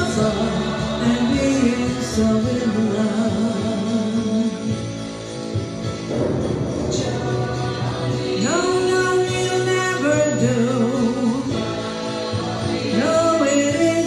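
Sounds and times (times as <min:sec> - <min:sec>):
backing music: 0:00.0 - 0:14.0
woman singing with vibrato: 0:06.8 - 0:14.0.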